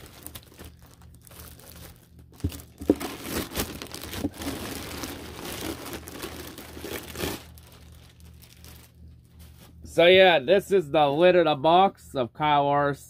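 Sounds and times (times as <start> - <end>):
plastic bag crinkling: 0.0 - 9.7.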